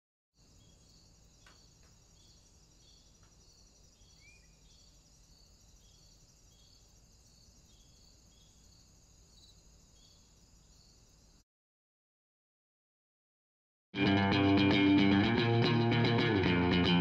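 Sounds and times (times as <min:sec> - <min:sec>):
small high chirps: 0:00.5 - 0:10.9.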